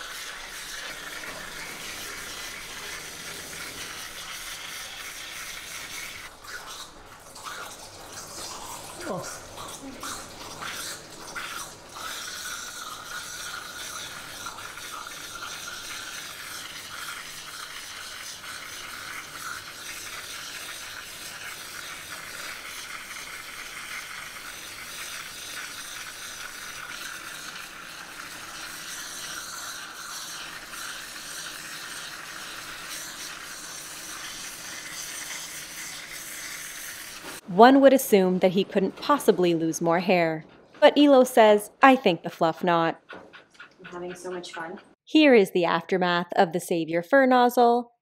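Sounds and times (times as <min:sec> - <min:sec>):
spray splashing into metal tub: 0:00.0 - 0:37.5
water jet hissing: 0:00.0 - 0:40.3.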